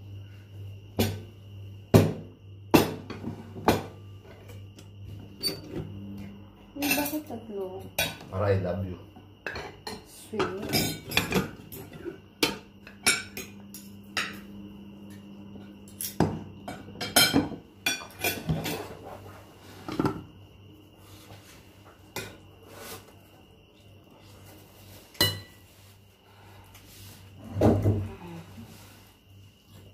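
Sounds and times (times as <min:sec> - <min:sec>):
cutlery clinking on plates: 0:15.9 - 0:18.9, 0:25.1 - 0:25.6
plates set down on table: 0:16.0 - 0:18.8, 0:19.8 - 0:20.3, 0:27.5 - 0:28.2.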